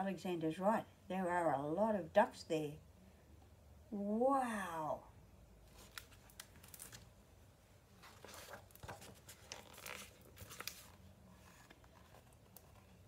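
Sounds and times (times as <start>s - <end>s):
paper pages rustling: 5.7s - 7.1s, 8.0s - 13.0s.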